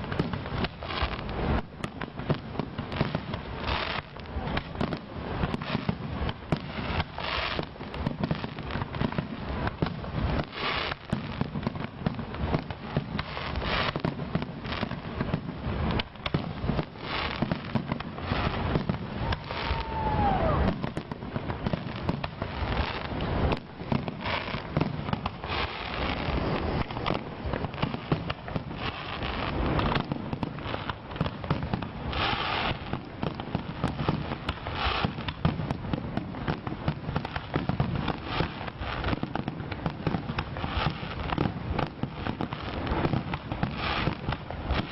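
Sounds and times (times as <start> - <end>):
fireworks bangs and crackling: 0.0 - 44.9
falling firework whistle: 16.8 - 32.9.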